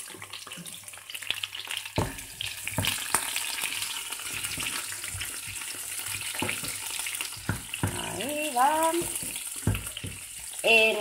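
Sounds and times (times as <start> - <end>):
peppers sizzling in oil: 0.0 - 11.0
spatula knocking pan: 2.0 - 3.3, 4.2 - 10.6.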